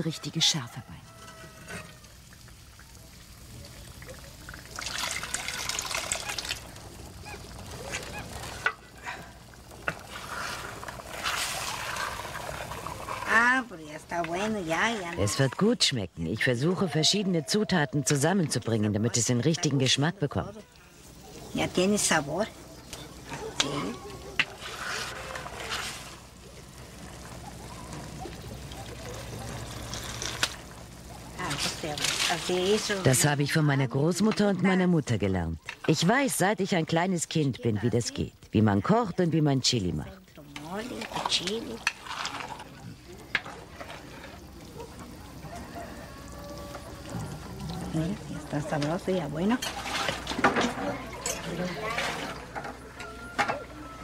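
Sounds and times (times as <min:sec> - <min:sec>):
liquid pouring into pot: 0:02.0 - 0:13.6, 0:41.0 - 0:48.8.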